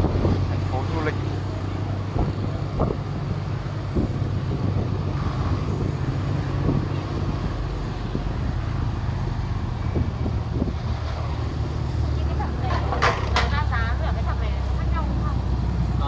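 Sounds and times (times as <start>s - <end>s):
street traffic: 0.0s - 16.0s
vehicle engine rumble and road noise: 0.0s - 16.0s.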